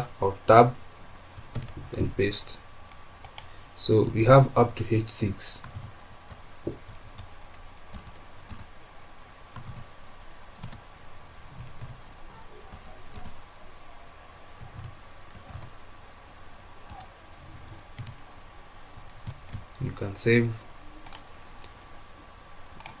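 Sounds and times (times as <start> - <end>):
keyboard typing clicks: 3.2 - 3.5, 7.9 - 8.7, 12.7 - 13.4, 14.6 - 15.7, 21.0 - 21.3, 22.8 - 23.0.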